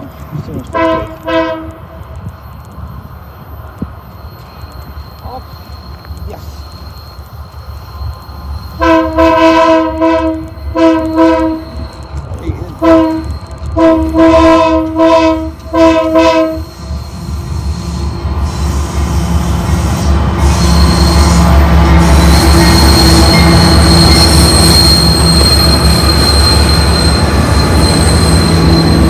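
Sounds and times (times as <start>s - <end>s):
train engines and wheels rumbling: 0.0s - 29.0s
locomotive air horn blasts: 0.7s - 1.9s, 8.8s - 11.8s, 12.8s - 16.7s.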